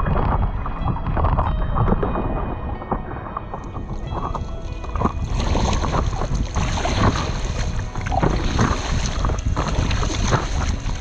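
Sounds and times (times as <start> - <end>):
paddle splashing water: 0.0 - 11.0
wind buffeting microphone: 0.0 - 11.0
water slapping against board: 2.9 - 11.0.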